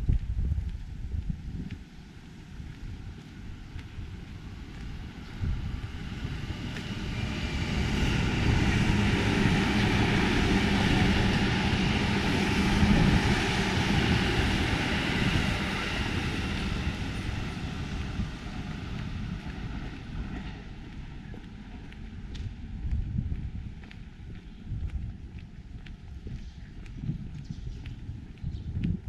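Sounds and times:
large vehicle passing by: 3.0s - 23.6s.

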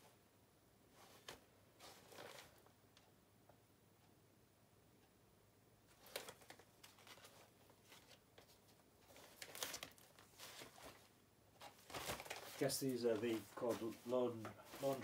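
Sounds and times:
plastic bags rustling: 1.0s - 2.6s, 5.9s - 15.0s.

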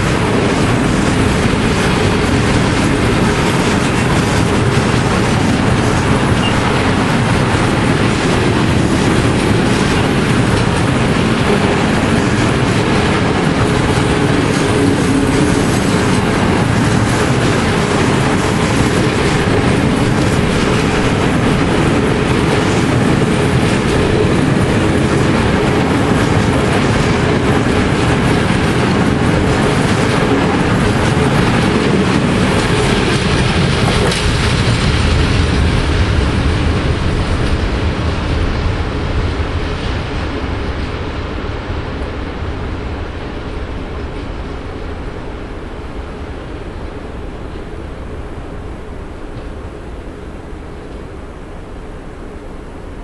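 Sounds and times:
steel wheels rumbling on rails: 0.0s - 53.0s
clickety-clack of wheelsets: 0.1s - 38.7s.

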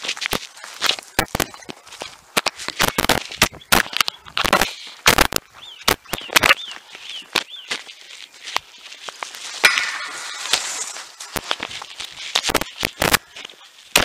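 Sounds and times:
footsteps on a path: 0.0s - 14.0s
small bird chirping: 5.5s - 8.5s.

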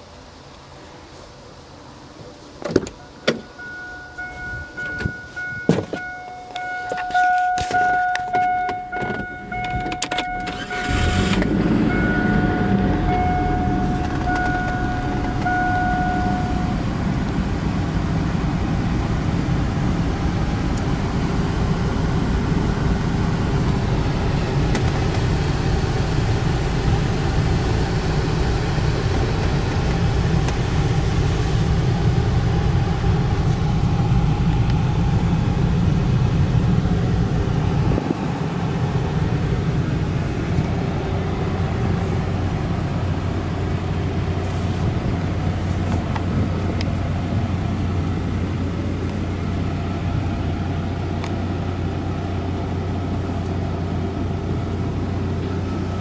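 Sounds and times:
dashboard warning chime pinging: 3.0s - 17.0s
engine starting and idling: 6.7s - 33.1s.

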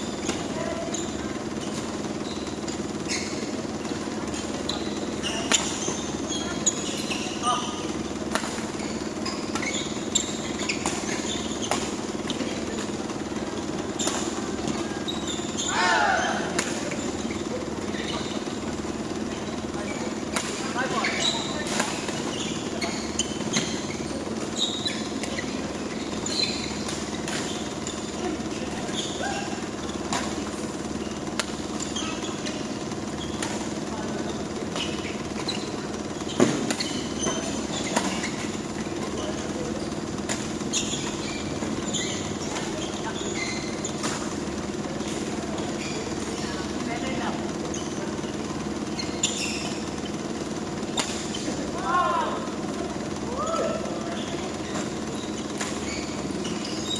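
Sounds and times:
sneaker squeaks on court floor: 0.0s - 56.9s
steady low hum: 0.0s - 56.9s
racket hitting shuttlecock: 8.2s - 10.0s, 15.4s - 17.0s, 26.6s - 32.6s, 49.2s - 51.6s, 54.1s - 56.9s
racket striking shuttlecock: 31.3s - 32.0s, 50.9s - 51.4s.

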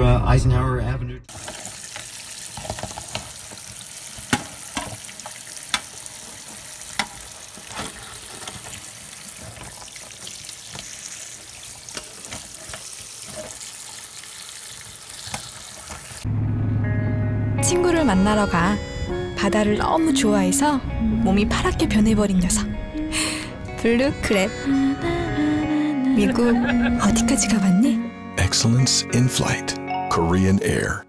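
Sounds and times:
tap water spraying into sink: 1.3s - 16.2s.

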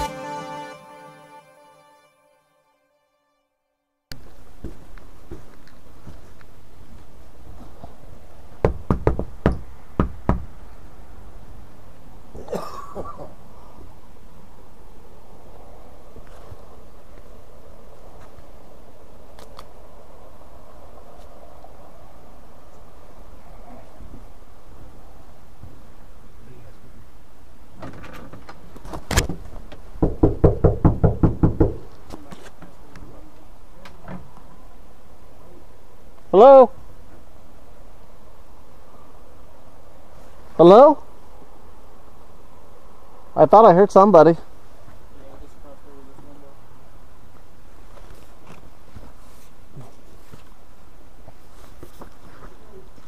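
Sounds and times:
fist knocking on door: 8.6s - 10.5s, 30.0s - 31.8s.

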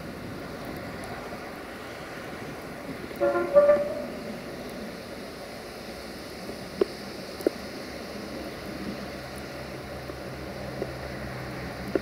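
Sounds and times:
diesel locomotive rumble: 0.0s - 12.0s.

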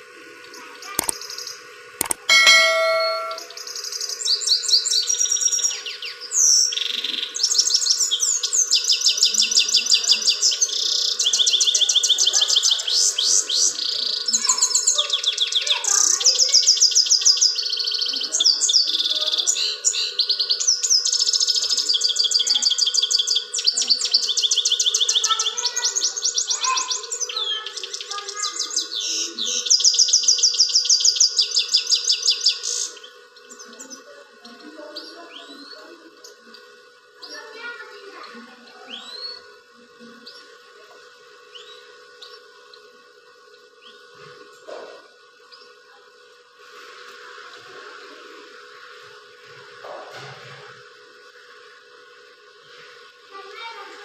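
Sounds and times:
finch trilling song: 2.2s - 3.6s.

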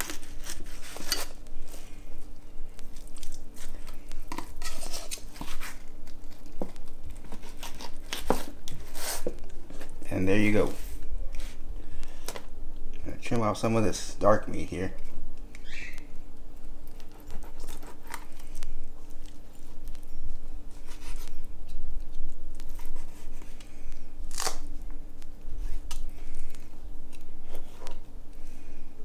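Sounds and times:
knife slicing and scraping fish: 0.0s - 1.4s, 3.2s - 5.8s.

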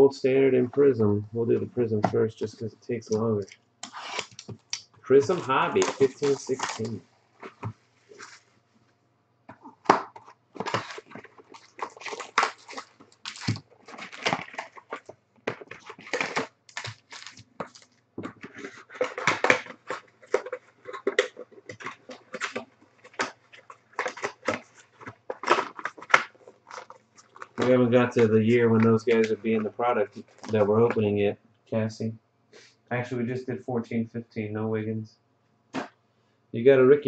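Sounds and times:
foil card packs crinkling: 3.8s - 8.5s, 9.6s - 30.7s.

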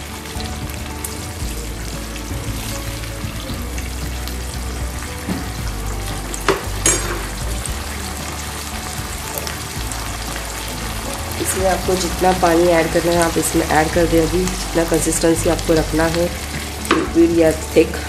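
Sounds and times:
gravy sizzling in a pan: 0.0s - 18.0s.

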